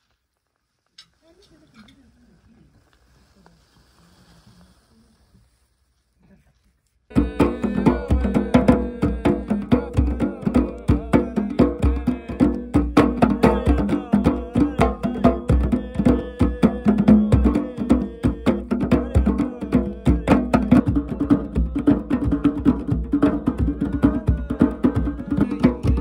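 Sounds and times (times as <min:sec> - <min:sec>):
hand drums in fast rhythm: 0:07.1 - 0:26.0.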